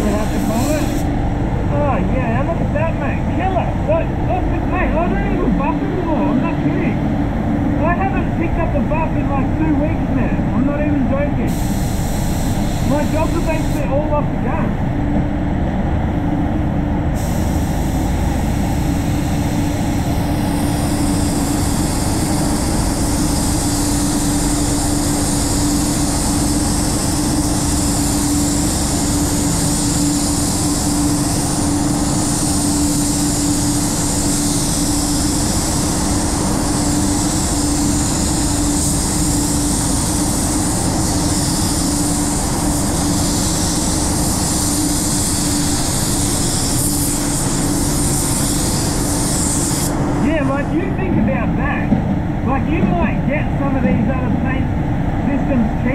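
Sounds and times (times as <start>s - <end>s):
spray gun hissing: 0.0s - 1.1s, 11.5s - 13.9s, 17.2s - 50.3s
air extraction rumble and hum: 0.0s - 55.9s.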